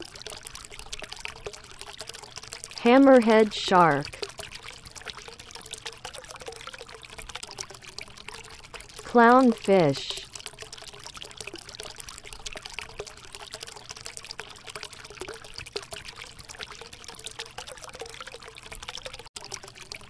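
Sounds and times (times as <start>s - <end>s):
water trickling over rocks: 0.0s - 20.0s
faint steady hum: 1.5s - 6.6s, 7.7s - 13.2s.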